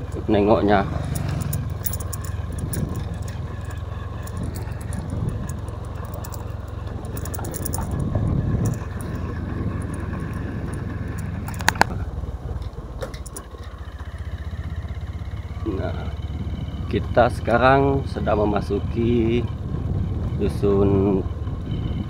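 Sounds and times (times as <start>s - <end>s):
motorcycle riding: 0.0s - 22.0s
sharp clicks: 8.7s - 12.0s.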